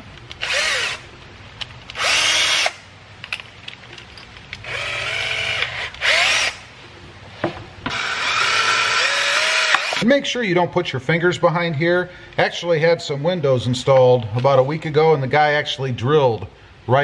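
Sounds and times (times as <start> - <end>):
cordless drill whining: 0.4 - 1.0, 1.9 - 2.8, 4.6 - 6.7, 7.9 - 10.0.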